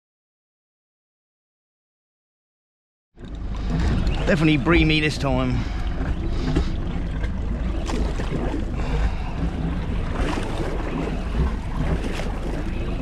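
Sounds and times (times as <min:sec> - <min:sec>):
water slapping against boat hull: 0:03.2 - 0:13.0
wind buffeting microphone: 0:03.2 - 0:13.0.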